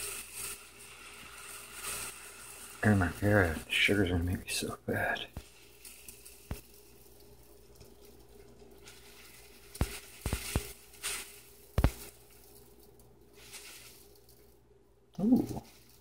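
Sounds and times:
rustling hiss: 0.0s - 14.6s
sugar bag and container knocking: 9.7s - 12.2s.

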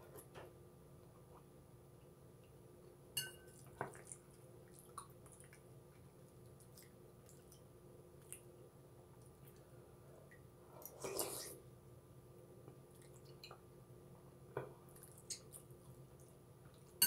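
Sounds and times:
wet chewing and mouth sounds: 3.5s - 8.5s, 10.3s - 11.6s, 14.9s - 17.0s.

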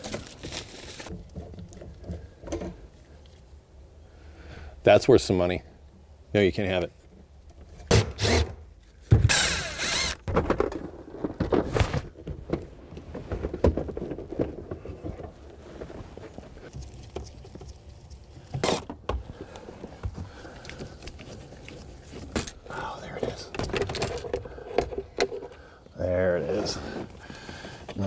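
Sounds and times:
rustling: 0.0s - 3.6s, 9.9s - 28.0s
power driver whirring: 9.3s - 10.2s.

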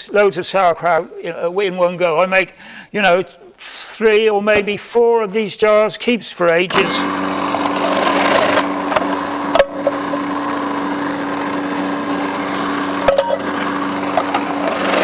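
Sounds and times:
food processor motor running: 6.7s - 15.0s
cabbage being shredded: 6.8s - 15.0s.

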